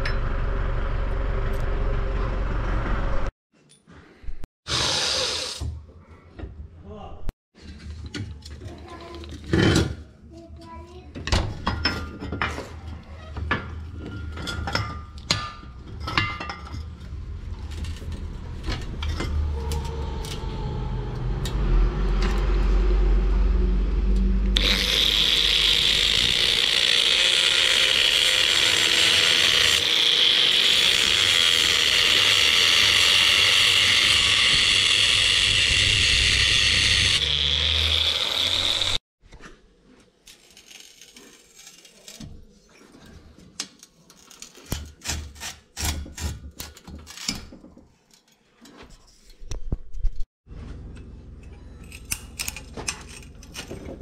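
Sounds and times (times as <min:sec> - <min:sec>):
angle grinder cutting metal: 0:04.7 - 0:05.6, 0:24.2 - 0:39.0.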